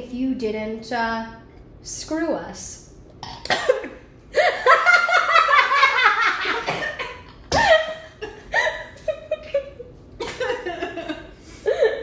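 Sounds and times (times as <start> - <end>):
woman laughing hard: 4.4 - 12.0.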